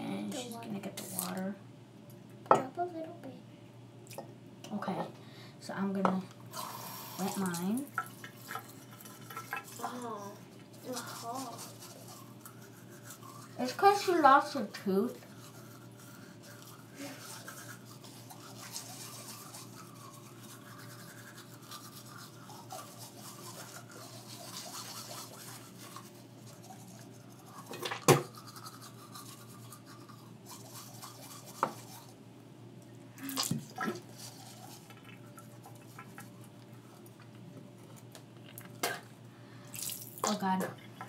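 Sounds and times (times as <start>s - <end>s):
toothbrush scrubbing teeth: 6.5s - 32.2s, 33.2s - 37.3s.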